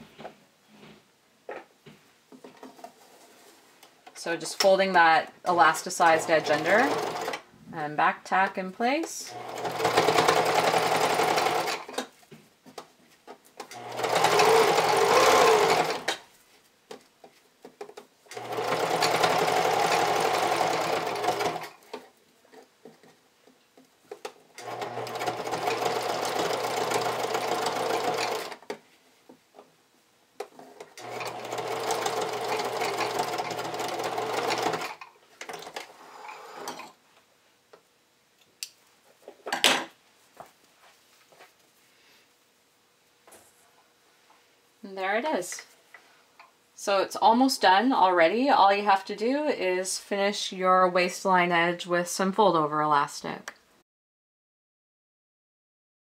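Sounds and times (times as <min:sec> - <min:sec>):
sewing machine stitching: 0:05.5 - 0:07.4, 0:09.2 - 0:12.1, 0:13.6 - 0:16.2, 0:18.3 - 0:22.1, 0:24.6 - 0:28.8, 0:30.5 - 0:37.0.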